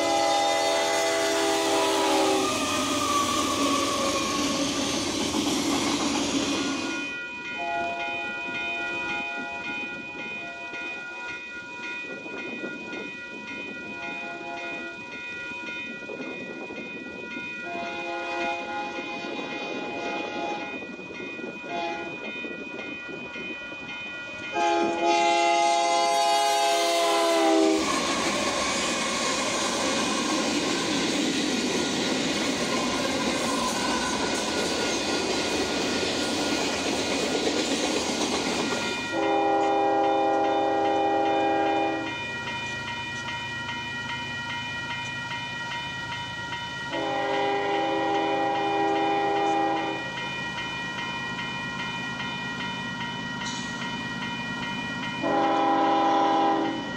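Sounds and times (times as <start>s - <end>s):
locomotive air horn blasts: 0.0s - 2.6s, 7.6s - 8.3s, 17.7s - 19.2s, 19.8s - 20.6s, 21.7s - 22.1s, 24.5s - 28.1s, 39.1s - 42.1s, 46.9s - 50.0s, 55.2s - 56.8s
train wheels clattering past: 0.0s - 11.1s, 24.3s - 56.9s.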